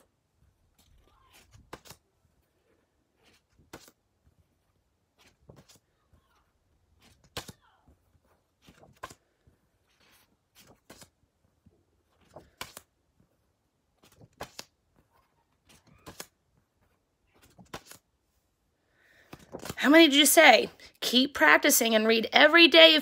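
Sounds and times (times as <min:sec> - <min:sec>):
index cards flipping: 0:00.8 - 0:02.1, 0:03.2 - 0:04.0, 0:06.9 - 0:07.6, 0:08.6 - 0:09.3, 0:09.9 - 0:11.2, 0:12.1 - 0:12.9, 0:14.0 - 0:14.8, 0:15.6 - 0:18.1, 0:19.2 - 0:19.8.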